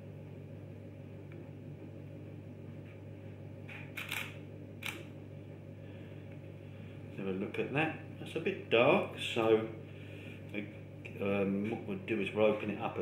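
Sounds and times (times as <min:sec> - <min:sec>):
steady low hum: 0:00.0 - 0:13.0
camera shutter clacks: 0:04.0 - 0:05.0.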